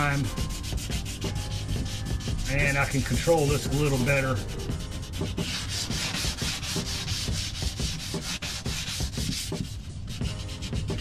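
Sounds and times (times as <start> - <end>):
sandpaper rubbing back and forth: 0.0 - 11.0.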